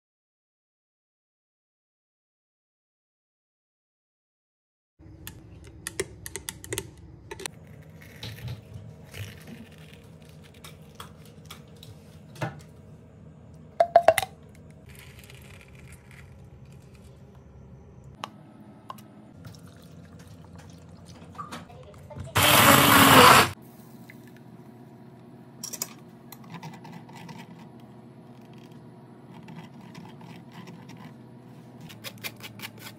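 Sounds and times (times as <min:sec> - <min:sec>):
water pouring into jug: 0:19.4 - 0:21.2.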